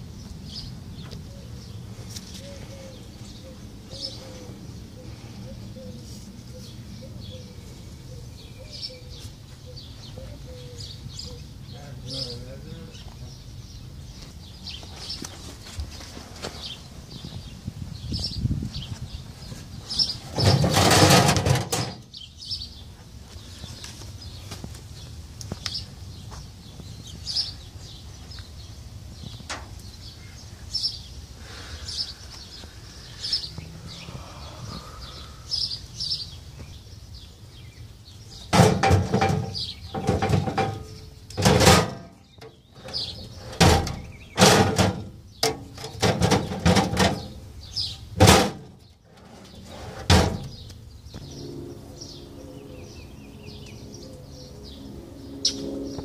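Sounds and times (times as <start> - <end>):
bird chirping: 0.0 - 15.7, 21.8 - 56.0
metal drawers opening and shutting: 20.3 - 22.1, 38.6 - 42.1, 42.8 - 47.4, 48.2 - 50.6.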